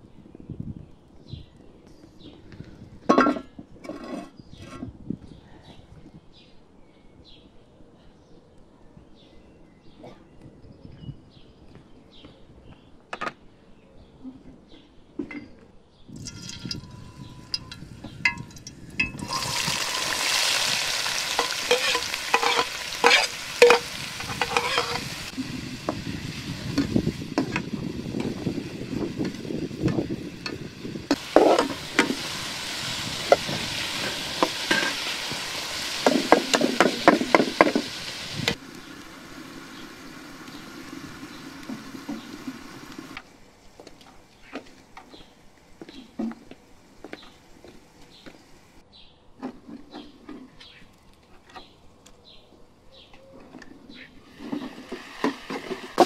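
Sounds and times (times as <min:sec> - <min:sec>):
metal utensil scraping a pan: 0:03.2 - 0:04.9, 0:16.2 - 0:25.4, 0:29.9 - 0:32.5, 0:33.3 - 0:38.0
vegetables sizzling in hot oil: 0:16.2 - 0:43.2.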